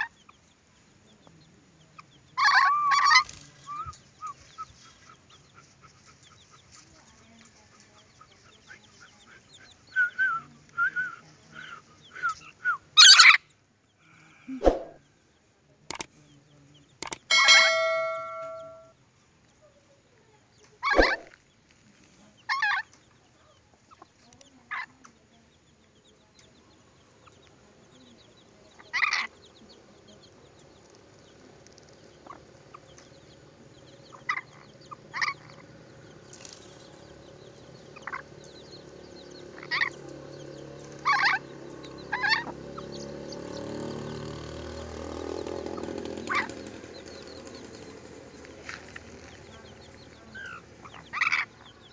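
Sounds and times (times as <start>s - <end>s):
lorikeet screeching calls: 2.4s - 4.4s, 13.0s - 13.4s, 17.3s - 18.8s, 41.0s - 42.6s, 50.4s - 51.7s.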